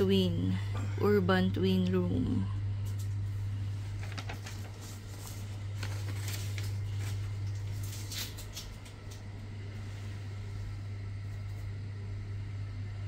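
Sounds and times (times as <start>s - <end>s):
steady low hum: 0.0s - 13.0s
paper sheets rustling: 3.6s - 8.9s.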